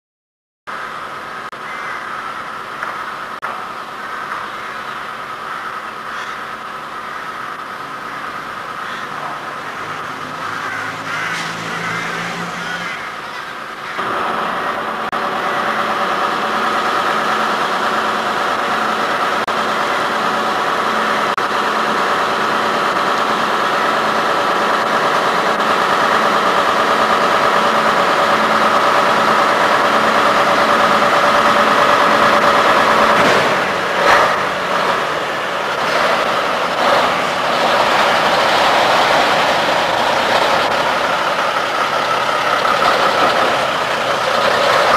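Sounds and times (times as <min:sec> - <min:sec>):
diesel engine starting and idling: 0:00.7 - 0:44.9.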